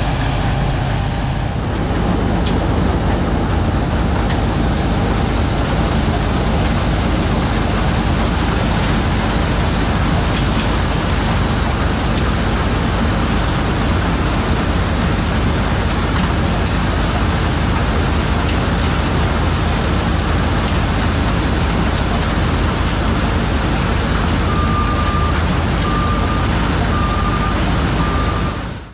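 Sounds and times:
skid steer running: 0.0 - 28.9
backup alarm beeping: 24.5 - 28.8.

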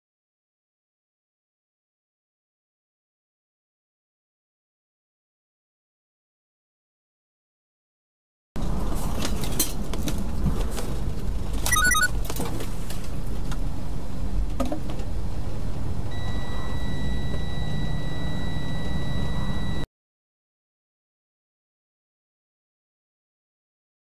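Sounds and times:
road noise: 8.6 - 16.1
high electronic beeps: 11.7 - 12.1
steady high electronic tone: 11.7 - 12.1.

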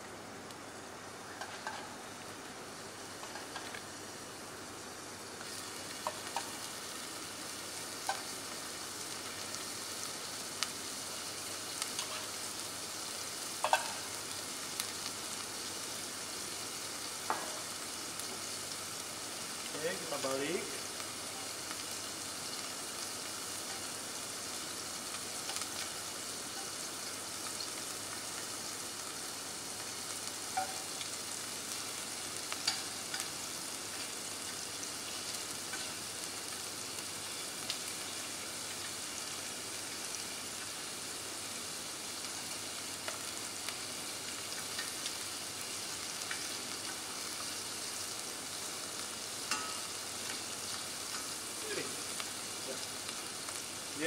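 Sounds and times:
shrimp sizzling in hot oil: 0.0 - 54.0
metal tongs clicking against pan: 32.6 - 33.3, 49.5 - 50.4.

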